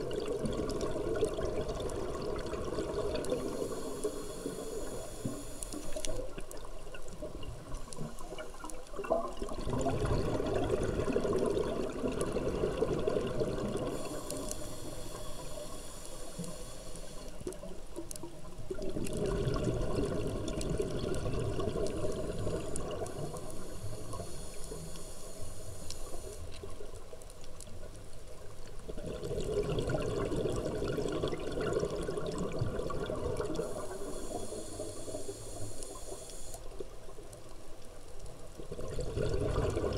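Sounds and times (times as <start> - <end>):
regulator hiss: 3.3 - 6.3, 13.8 - 17.5, 22.0 - 26.8, 33.4 - 36.8
diver exhaling bubbles underwater: 9.0 - 14.3, 18.7 - 23.5, 28.9 - 34.6, 38.7 - 39.9.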